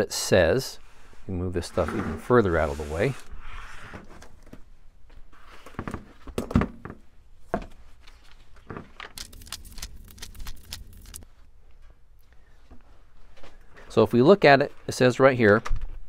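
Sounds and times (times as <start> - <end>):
objects sliding on workbench: 1.0 - 4.2
paper pages turning: 9.0 - 11.2.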